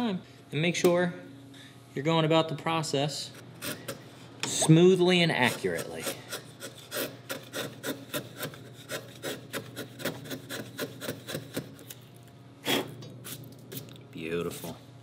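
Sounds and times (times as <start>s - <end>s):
chisel scraping wood: 5.5s - 11.7s.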